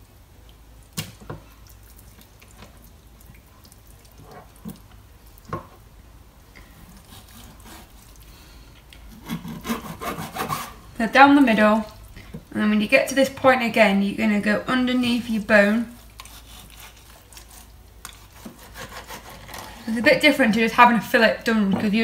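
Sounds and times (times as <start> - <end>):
knife sawing through fish: 6.9 - 8.2, 9.1 - 10.8, 16.1 - 19.9.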